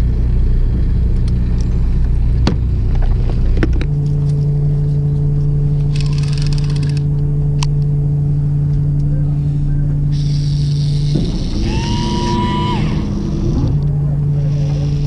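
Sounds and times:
boat engine droning: 0.0s - 15.0s
rapid clicking: 5.9s - 7.1s.

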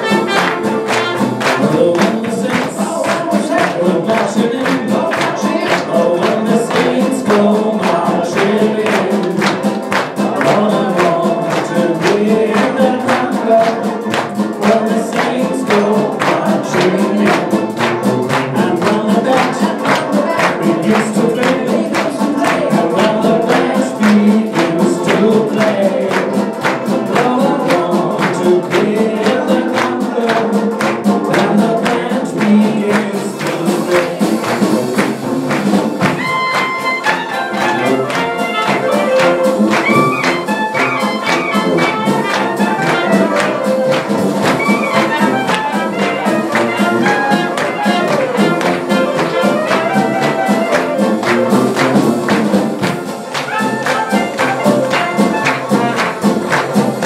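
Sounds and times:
clarinet: 0.0s - 2.0s, 34.3s - 57.0s
voices singing along: 0.0s - 53.4s
drums: 0.0s - 57.0s
jazz band playing: 0.0s - 57.0s
trumpet: 0.0s - 57.0s
tuba: 0.0s - 57.0s.

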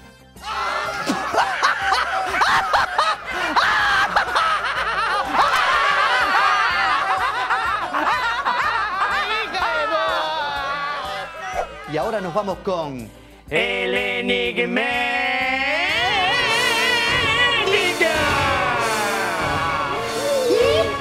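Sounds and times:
high voices laughing together: 0.8s - 11.9s.

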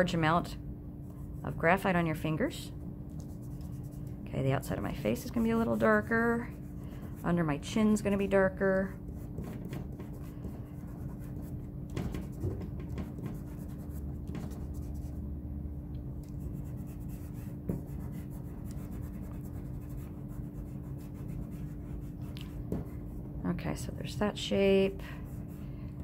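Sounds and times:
steady low hum: 0.0s - 26.0s
fingertips rubbing on paper: 3.1s - 8.2s, 9.0s - 15.2s, 16.2s - 22.8s, 25.2s - 25.7s.

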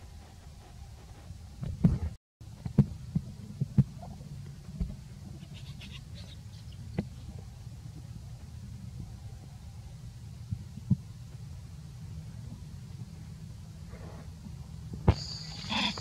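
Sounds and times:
steady low rumble: 6.4s - 16.0s.

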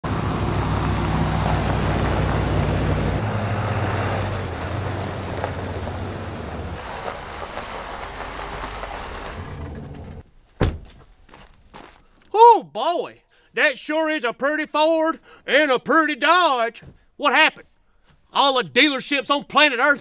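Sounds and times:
pickup truck engines rumbling: 0.0s - 10.2s.

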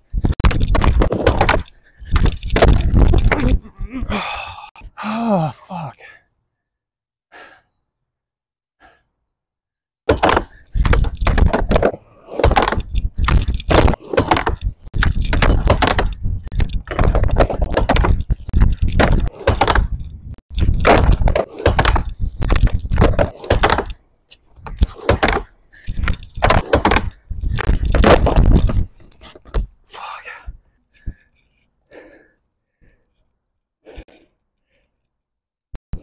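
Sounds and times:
skateboard clacks: 10.1s - 12.9s, 18.9s - 20.0s, 20.8s - 23.9s, 24.7s - 25.5s, 26.4s - 28.8s
skateboard wheels rumbling on wood: 10.1s - 23.9s.

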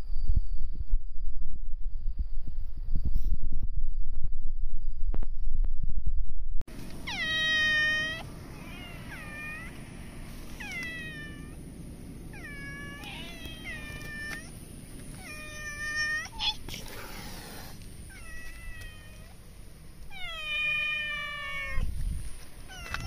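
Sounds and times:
low rumble with soft clicks: 0.0s - 7.0s
cat meowing: 7.0s - 9.8s, 10.5s - 11.6s, 12.3s - 16.8s, 18.1s - 19.4s, 20.1s - 21.9s, 22.6s - 23.0s.

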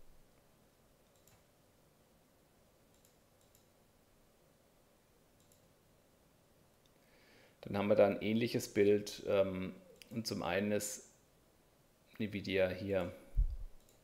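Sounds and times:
faint computer mouse clicks: 1.0s - 1.5s, 2.9s - 3.7s, 5.4s - 5.7s, 13.8s - 14.0s.

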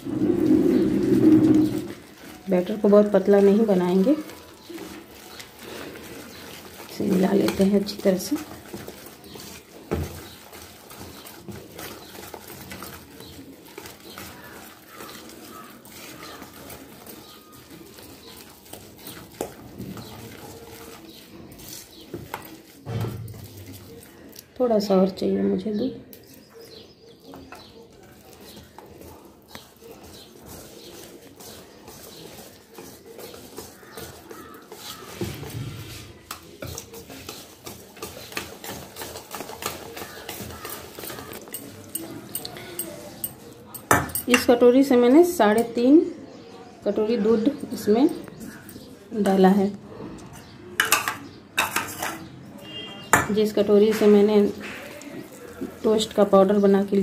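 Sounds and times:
whisk beating batter in metal bowl: 0.0s - 24.4s, 27.2s - 45.7s, 50.8s - 57.0s
whisk clicking against metal bowl: 36.3s - 44.6s.

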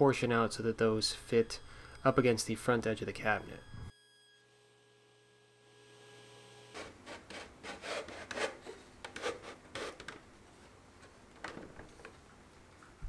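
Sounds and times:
wood scraping against wood: 6.8s - 10.8s.

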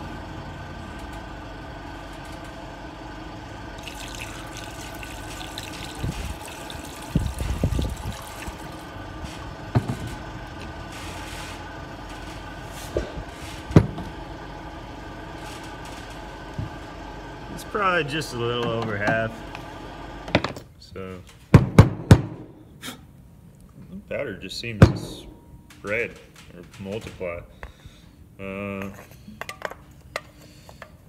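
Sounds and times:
steady mechanical hum: 0.0s - 31.0s
water trickling through funnel: 3.8s - 8.8s.

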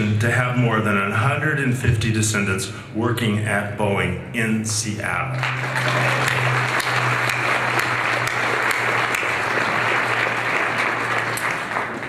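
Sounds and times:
audience applauding: 5.3s - 12.0s.

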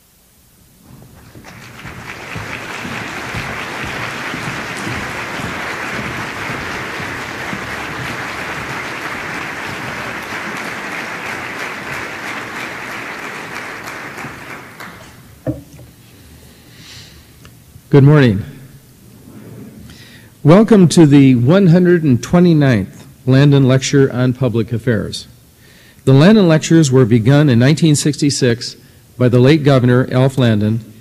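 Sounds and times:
large audience applauding: 0.9s - 15.4s.

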